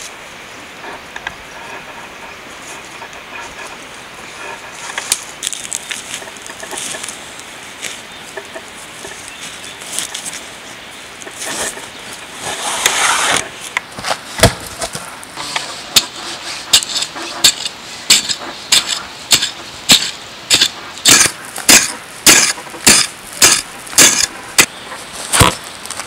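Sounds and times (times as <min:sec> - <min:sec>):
pole striking stony soil: 0:11.3 - 0:26.0.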